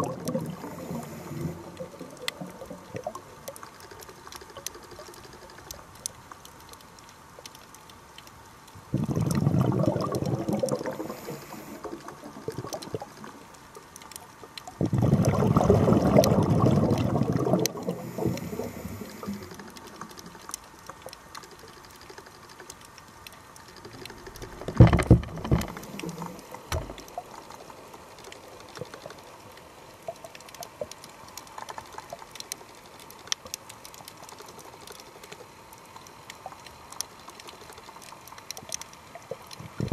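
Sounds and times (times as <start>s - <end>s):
underwater rush of bubbles: 0.0s - 3.6s, 8.9s - 13.5s, 14.7s - 20.4s, 23.9s - 27.6s, 39.3s - 39.9s
fine underwater clicks and crackles: 0.0s - 39.9s.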